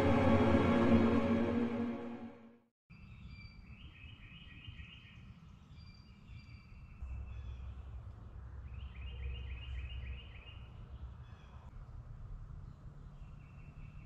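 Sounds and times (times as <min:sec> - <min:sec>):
low rumble: 0:00.0 - 0:02.4
songbird singing: 0:02.9 - 0:11.7.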